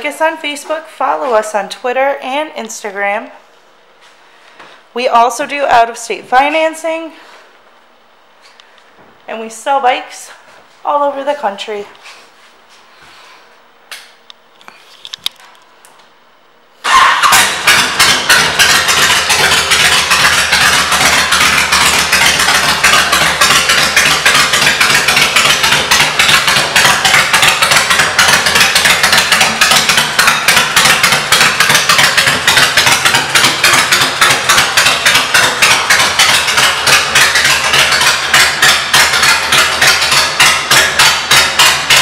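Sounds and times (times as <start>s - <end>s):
motorcycle engine idling: 16.9s - 42.0s.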